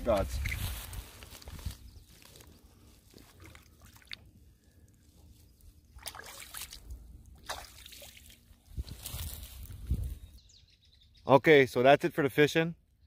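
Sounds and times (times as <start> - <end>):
pond water splashing: 3.0 - 8.7.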